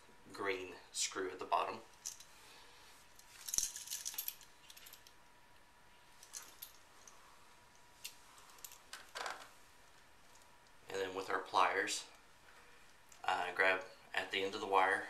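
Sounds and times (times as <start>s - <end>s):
metallic clinks of small hardware: 1.9s - 2.4s, 3.2s - 5.2s, 6.2s - 7.2s.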